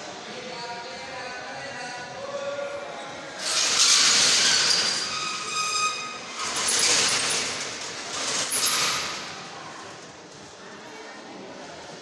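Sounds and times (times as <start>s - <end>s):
high squeal: 3.4s - 7.2s.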